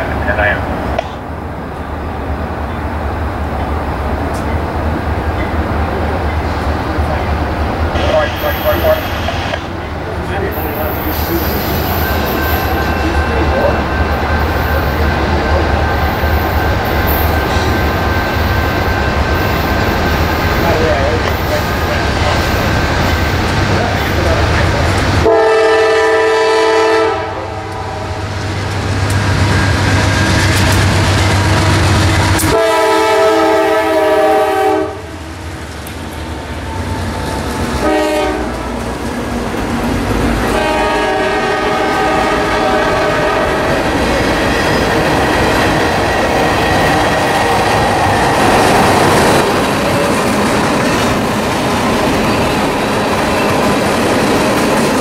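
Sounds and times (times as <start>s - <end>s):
train horn blasts: 25.2s - 28.2s, 32.4s - 35.2s, 37.8s - 38.7s, 40.4s - 43.8s
locomotives running: 41.8s - 55.0s
wheels clattering on rails: 43.5s - 55.0s.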